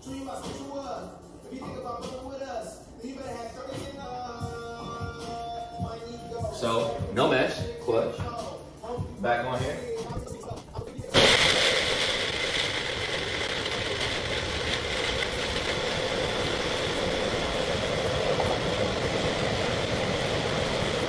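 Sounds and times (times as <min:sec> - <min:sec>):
electric blender whirring: 0:11.2 - 0:21.0.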